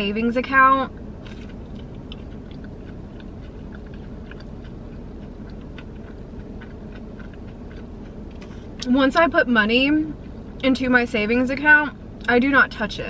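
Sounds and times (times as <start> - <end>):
person chewing food: 1.2 - 8.8.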